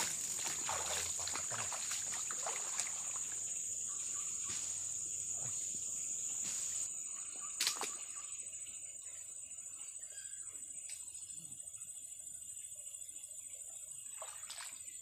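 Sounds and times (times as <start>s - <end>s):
water splashing around legs: 0.0s - 3.6s, 14.2s - 14.9s.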